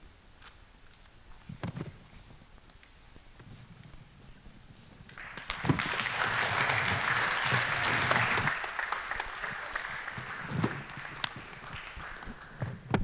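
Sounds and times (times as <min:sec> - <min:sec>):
audience applauding: 0:05.2 - 0:13.0.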